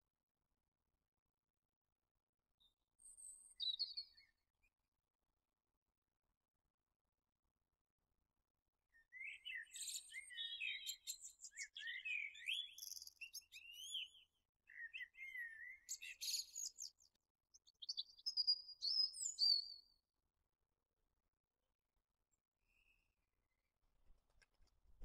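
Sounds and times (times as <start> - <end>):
songbird singing: 3.2 - 4.3, 9.0 - 20.0.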